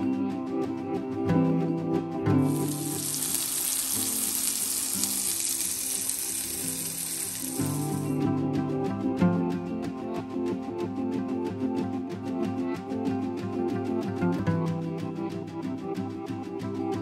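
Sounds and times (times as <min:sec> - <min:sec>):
soft background music: 0:00.0 - 0:17.0
sausage sizzling in a skillet: 0:02.4 - 0:08.2.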